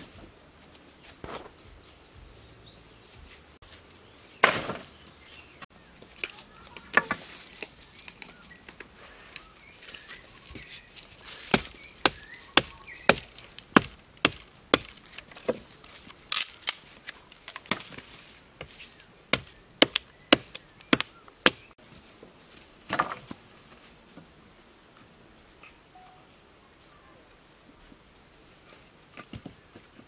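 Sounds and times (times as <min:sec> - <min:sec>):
axe chopping wood: 0:04.4 - 0:04.9, 0:11.5 - 0:15.6, 0:17.6 - 0:18.0, 0:19.3 - 0:21.7.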